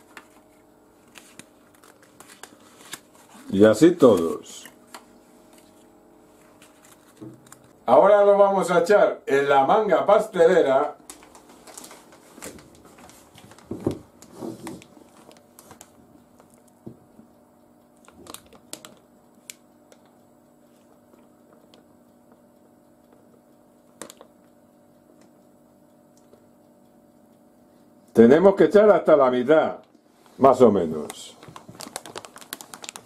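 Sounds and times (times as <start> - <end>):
plastic bag rustling and crinkling: 0.0 - 3.6, 11.1 - 16.5, 31.0 - 33.0
faint steady hum: 0.0 - 33.0.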